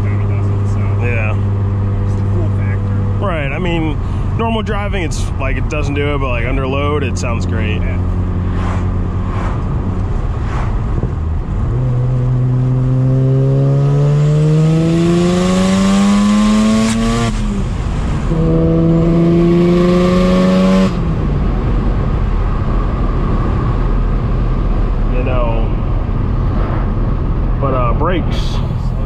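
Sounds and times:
rotary engine revving: 7.5 - 21.2.

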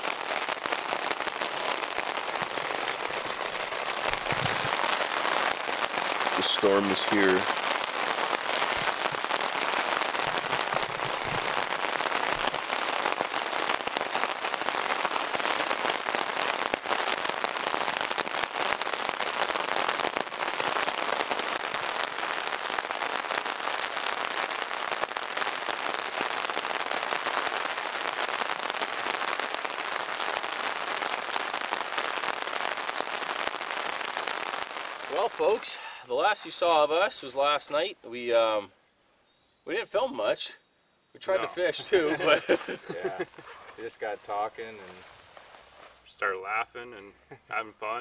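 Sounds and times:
heavy rain on tent fabric: 0.0 - 38.7, 41.2 - 48.0.

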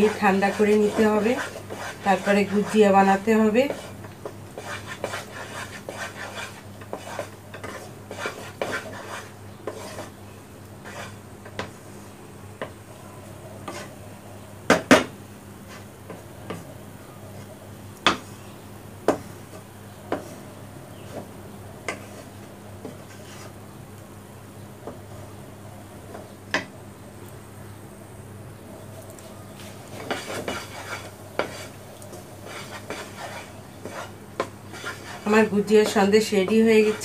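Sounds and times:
wooden spatula scraping pan: 0.0 - 10.2, 10.8 - 11.7, 13.6 - 13.9, 20.1 - 21.3, 21.9 - 23.6, 29.6 - 37.0
spatula knocking on pan: 14.7 - 15.2.

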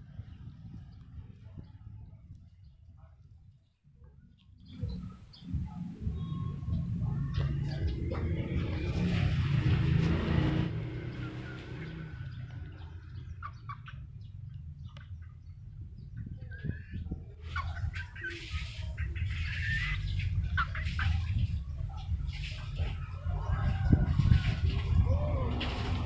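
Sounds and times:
chickens clucking: 4.3 - 26.0
steady low rumble: 4.6 - 10.3, 12.0 - 18.0.

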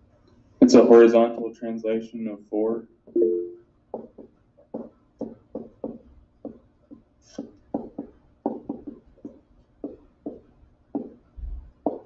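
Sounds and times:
stylus tapping on touchscreen: 3.2 - 11.2.

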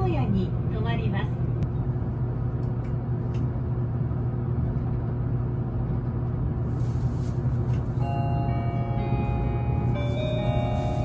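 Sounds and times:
electric train running: 7.7 - 11.0.

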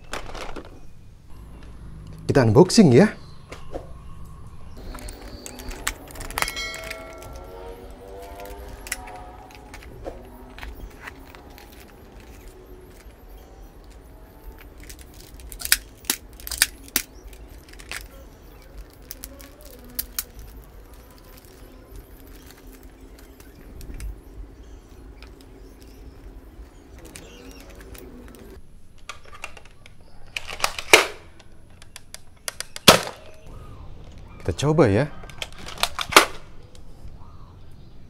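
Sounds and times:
plastic bag crinkling: 0.0 - 0.9, 4.8 - 28.6
sharp clicks and rattles: 4.2 - 34.2, 35.2 - 36.8.

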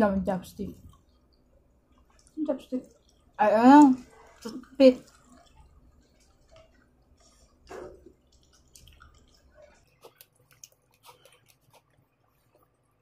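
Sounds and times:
wet mouth eating sounds: 0.8 - 13.0
slurp: 4.0 - 12.8.

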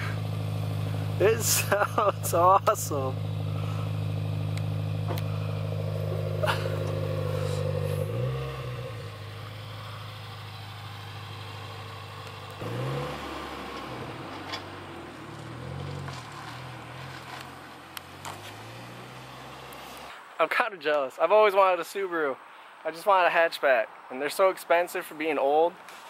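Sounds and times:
car engine idling and pulling away: 0.0 - 20.2.

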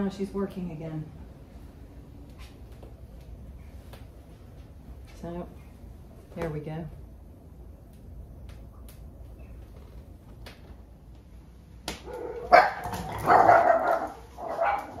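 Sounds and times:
small dogs barking: 12.0 - 15.0.

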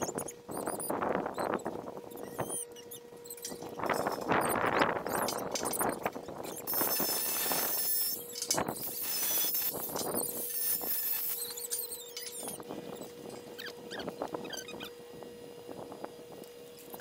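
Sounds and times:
angle grinder grinding metal: 0.0 - 15.9.

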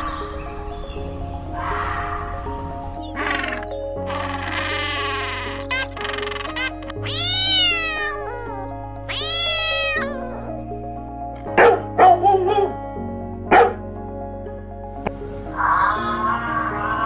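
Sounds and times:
background music: 0.0 - 17.0
cat meowing: 3.2 - 10.6
dog barks: 11.5 - 12.8, 13.5 - 13.8.

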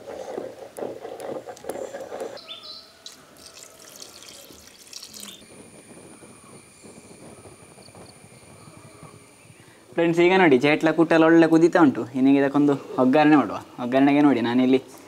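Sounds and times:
paste pouring in a stream: 3.0 - 5.4.

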